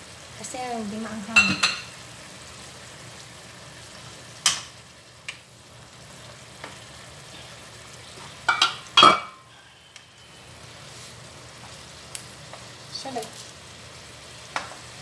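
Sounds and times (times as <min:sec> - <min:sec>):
sauce sizzling in frying pan: 0:00.0 - 0:15.0.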